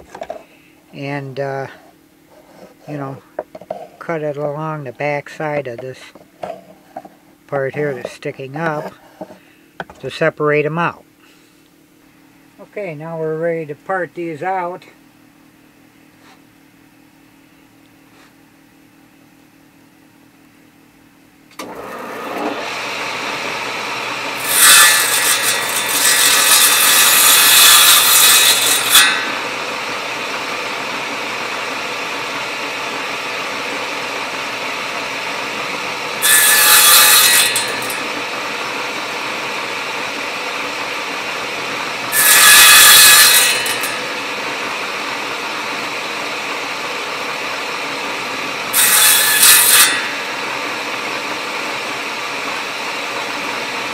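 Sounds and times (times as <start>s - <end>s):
saw blade cutting wood: 21.6s - 51.6s
table saw running: 21.6s - 53.9s.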